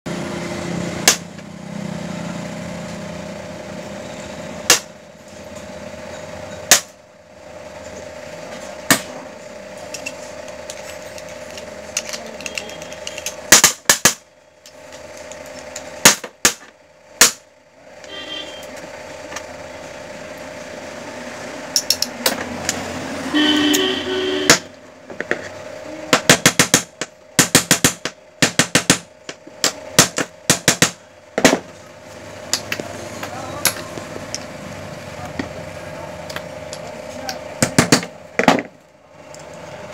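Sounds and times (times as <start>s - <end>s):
steady low hum: 0.1s - 39.9s
metal parts clicking on board: 9.9s - 14.2s.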